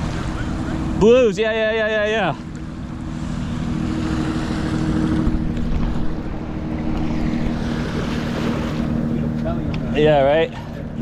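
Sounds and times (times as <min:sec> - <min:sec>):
motor humming: 0:00.0 - 0:10.9.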